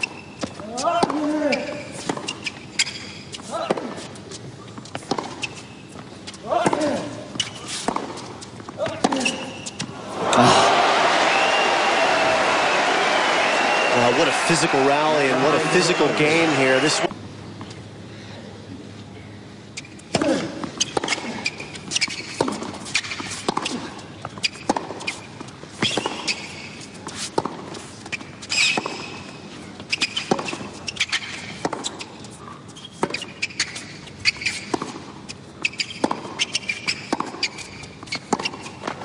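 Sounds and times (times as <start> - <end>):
tennis ball struck by rackets: 4.8 - 5.6, 6.4 - 9.9, 22.0 - 23.8, 24.4 - 26.4, 35.7 - 37.6
players grunting: 10.0 - 17.1.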